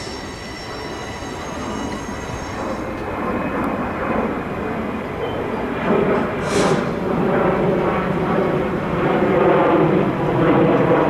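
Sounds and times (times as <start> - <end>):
train wheels squealing: 0.0 - 3.7, 5.0 - 5.7
freight cars rolling rumble: 0.0 - 9.3.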